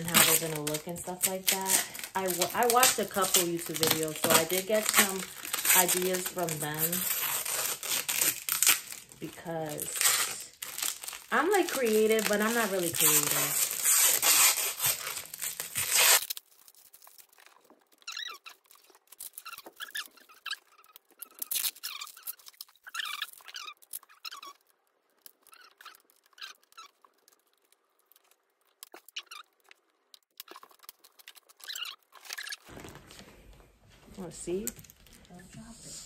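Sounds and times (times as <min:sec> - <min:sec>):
plastic packaging crinkling: 0:00.0 - 0:35.6
plastic tub scraping and squeaking: 0:30.4 - 0:33.0.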